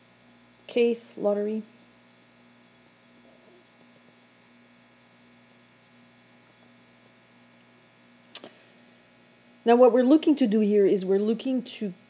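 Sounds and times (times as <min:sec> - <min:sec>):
faint mains hum: 0:00.0 - 0:12.0.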